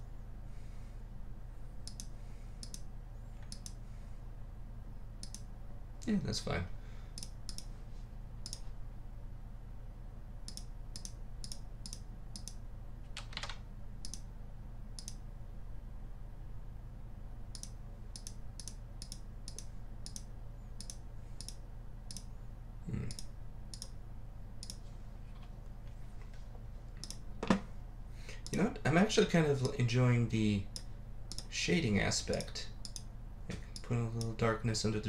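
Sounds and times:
low electrical hum: 0.0 - 35.0
computer mouse clicks: 1.8 - 3.8, 5.2 - 5.5, 7.2 - 7.7, 8.4 - 8.7, 10.5 - 14.3, 15.0 - 15.2, 17.5 - 22.3, 23.1 - 24.0, 24.6 - 24.8, 27.0 - 27.2, 30.8 - 31.5, 32.4 - 33.1.

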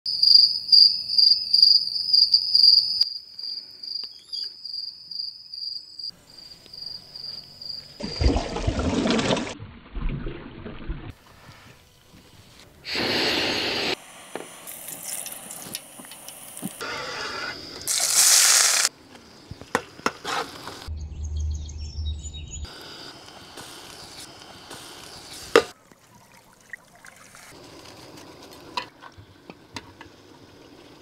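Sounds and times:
crickets chirping: 0.1 - 8.4, 13.0 - 20.8, 21.8 - 25.8.

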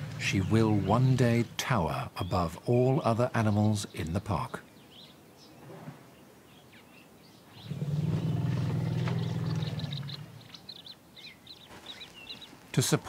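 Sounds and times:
elephant rumbling: 0.0 - 1.6, 7.6 - 10.9
birds chirping faintly: 0.0 - 13.0.

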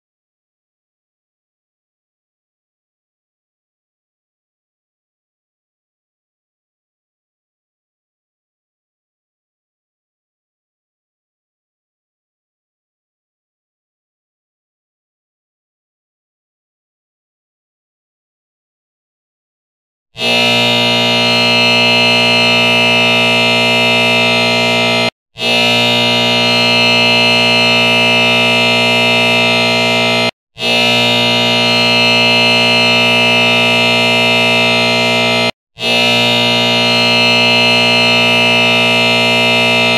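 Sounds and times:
timer alarm tone: 20.2 - 39.9.

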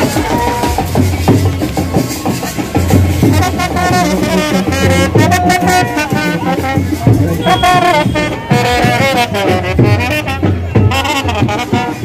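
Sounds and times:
drums: 0.0 - 12.0
trumpets playing a melody: 3.2 - 12.0.

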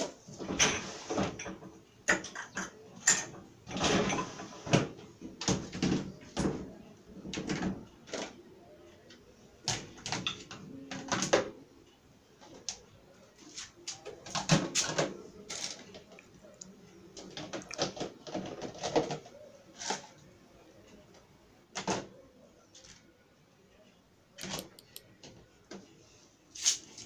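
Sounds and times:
plastic dishes clattering in rack: 0.0 - 8.4, 9.6 - 11.6, 13.9 - 16.2, 17.1 - 20.2, 21.7 - 22.2.

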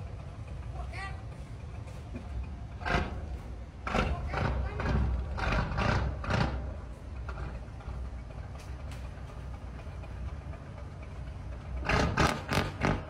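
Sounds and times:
boat diesel engine rumbling: 0.0 - 13.0.

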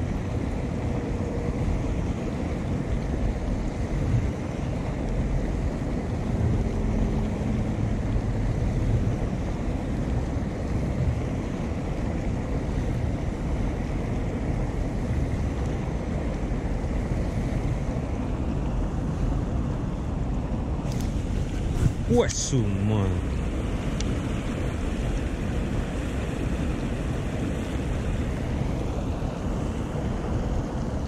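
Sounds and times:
wind buffeting microphone: 0.0 - 22.5.

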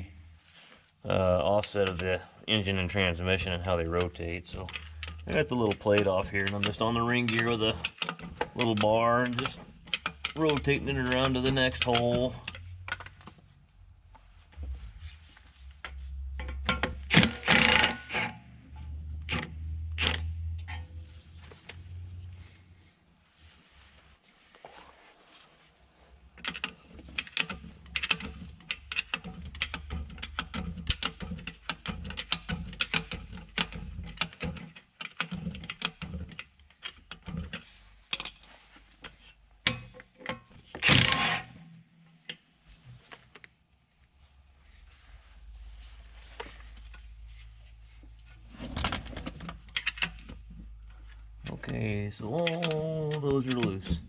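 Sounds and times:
metal tools clicking and scraping: 16.4 - 18.4
hand tools clicking on metal: 16.5 - 18.4, 51.7 - 54.0.

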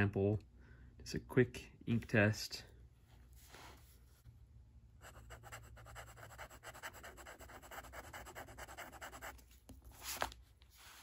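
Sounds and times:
pen nib scratching paper: 5.0 - 9.4.

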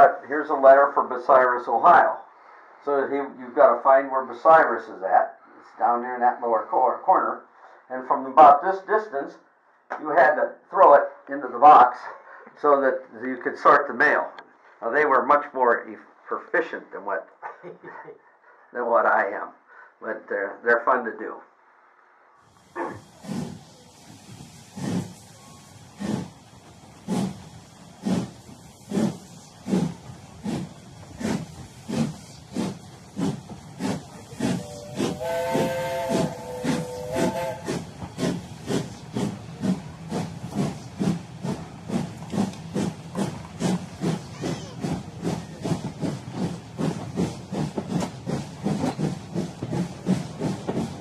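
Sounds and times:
steam locomotive chuffing: 22.4 - 51.0.

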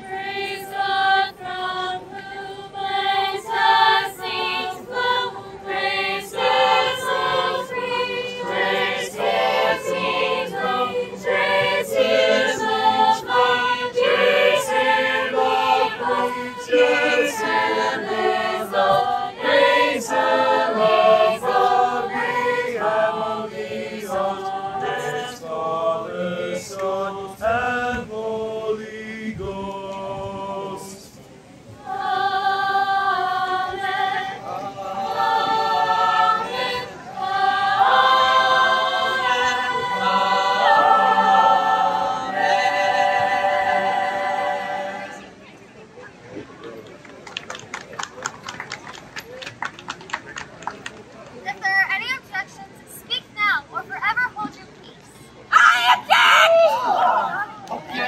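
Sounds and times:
choir singing a cappella: 0.0 - 45.4.

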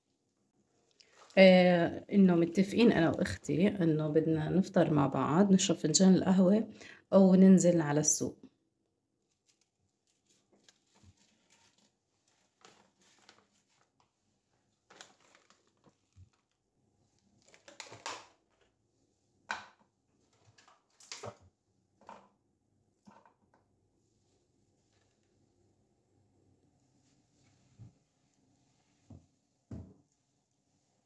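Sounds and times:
rustles and crinkles of food handling: 0.6 - 3.8, 9.2 - 25.8, 26.7 - 31.0.

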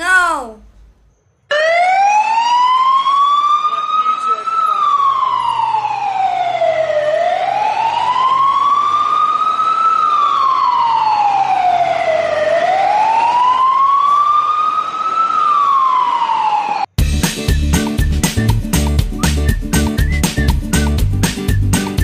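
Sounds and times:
fire-engine siren wailing: 1.5 - 16.9.

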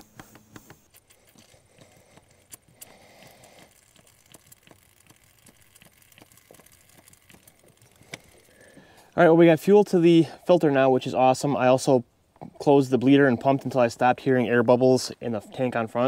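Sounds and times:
hand primer pump clicks and taps: 0.0 - 9.0.

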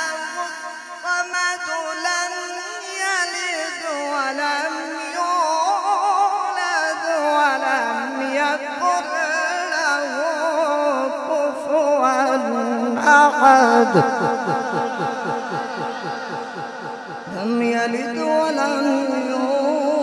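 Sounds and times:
man chanting through microphone: 0.0 - 20.0.

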